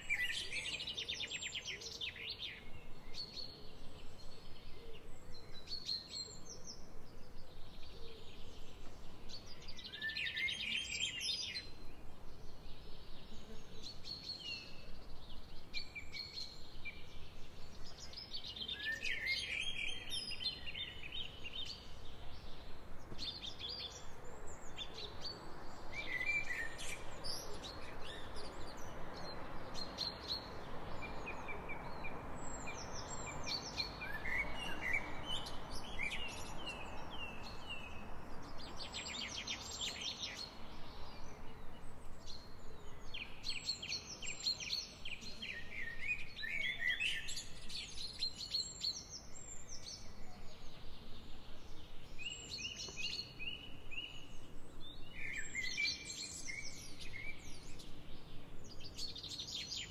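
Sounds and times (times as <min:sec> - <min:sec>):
songbirds singing: 0:00.0 - 0:59.9
steady background hiss: 0:00.0 - 0:59.9.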